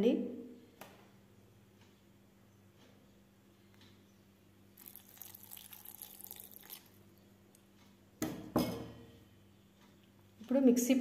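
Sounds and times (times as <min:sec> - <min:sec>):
water splashing into steel jar: 0:04.8 - 0:06.9.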